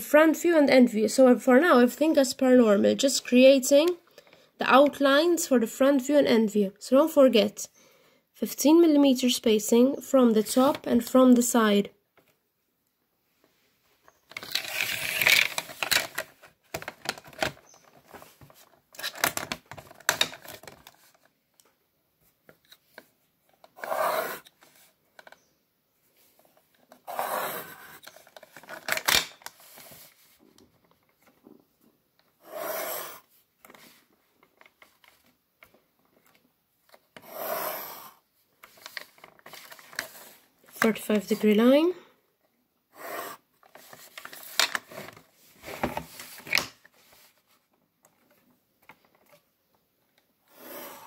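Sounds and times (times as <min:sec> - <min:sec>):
pencil scratching on paper: 0:23.8 - 0:24.5, 0:27.0 - 0:28.0, 0:32.4 - 0:33.2, 0:37.2 - 0:38.2, 0:50.5 - 0:51.0.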